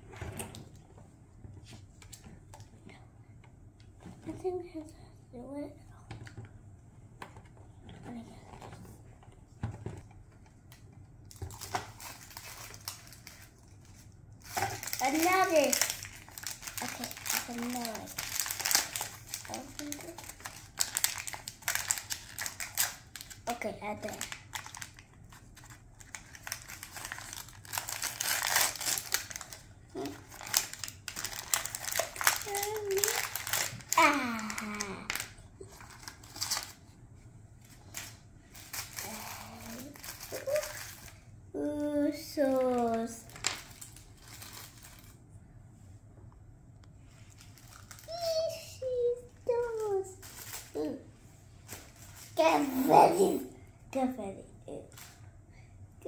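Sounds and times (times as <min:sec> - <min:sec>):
plastic packaging crinkling: 0:11.2 - 0:36.8, 0:37.8 - 0:41.2, 0:42.5 - 0:45.2, 0:47.3 - 0:51.0.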